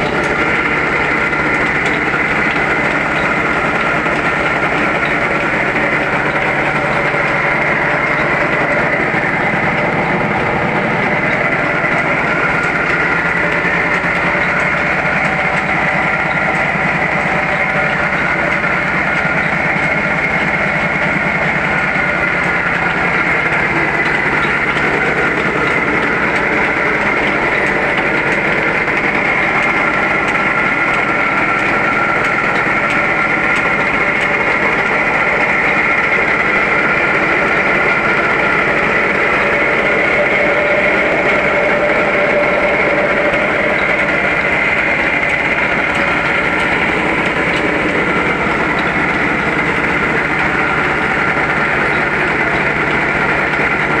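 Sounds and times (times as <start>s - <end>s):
rice polishing machine running: 0.0s - 54.0s.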